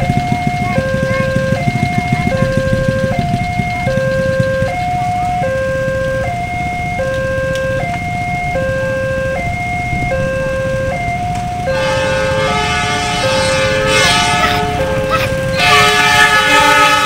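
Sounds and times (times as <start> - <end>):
level crossing two-note alarm: 0.0 - 17.0
motorcycle engines idling: 0.0 - 17.0
train horn: 11.7 - 17.0.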